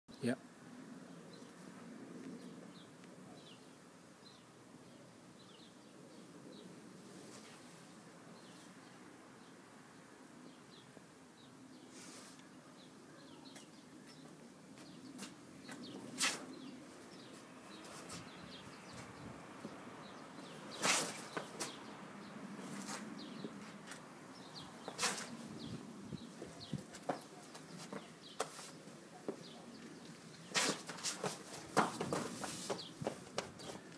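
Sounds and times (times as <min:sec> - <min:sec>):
people grappling rustling scuffs: 0:30.1 - 0:33.9.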